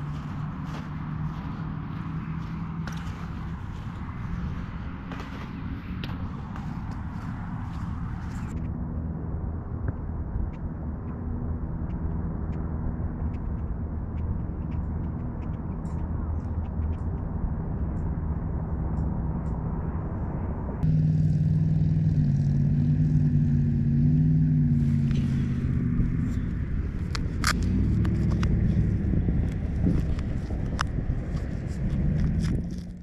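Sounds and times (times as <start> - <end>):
road traffic rumble: 0.0 - 33.0
wavering engine hum: 0.0 - 33.0
sharp clicks and taps: 11.8 - 19.7.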